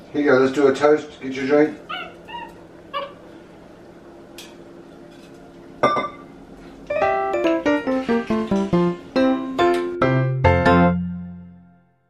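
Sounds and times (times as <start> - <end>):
piano music: 6.9 - 12.0.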